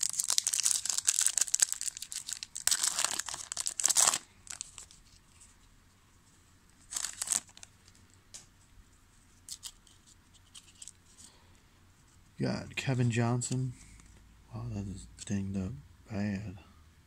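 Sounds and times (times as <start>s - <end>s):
foil wrapper crinkling: 0.0s - 5.2s, 6.8s - 8.0s.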